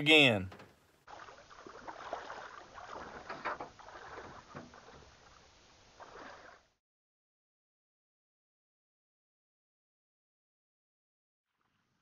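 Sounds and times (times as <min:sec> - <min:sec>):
water splashing and rustling: 0:00.0 - 0:06.8.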